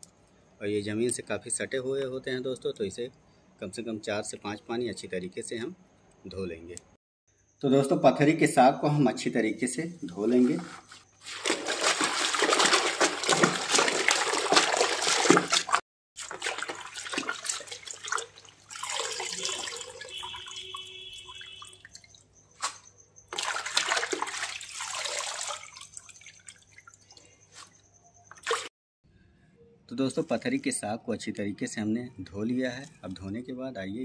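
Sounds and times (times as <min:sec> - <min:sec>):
hands splashing leaves in water: 0:11.2 - 0:26.8
water dripping: 0:11.4 - 0:28.7.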